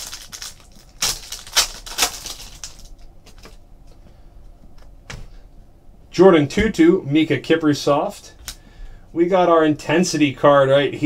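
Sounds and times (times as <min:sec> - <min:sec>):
cards rustling: 0:00.0 - 0:03.6
foil wrapper tearing and crinkling: 0:00.0 - 0:03.6.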